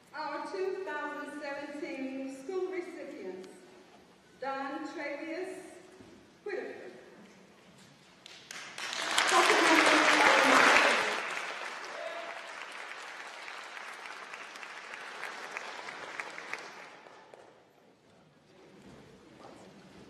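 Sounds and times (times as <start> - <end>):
audience applauding: 8.2 - 17.5.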